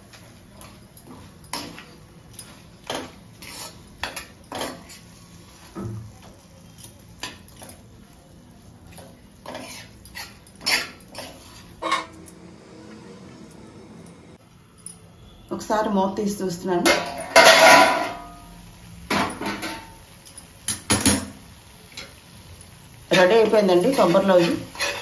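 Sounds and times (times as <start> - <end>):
metal spoon scraping a pan: 1.5 - 5.7, 9.4 - 12.4, 16.9 - 18.3, 23.1 - 25.0.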